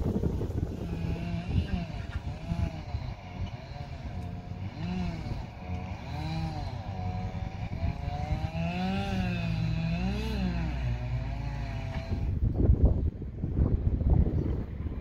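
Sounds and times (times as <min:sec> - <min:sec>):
engine running with swinging pitch: 0:00.0 - 0:15.0.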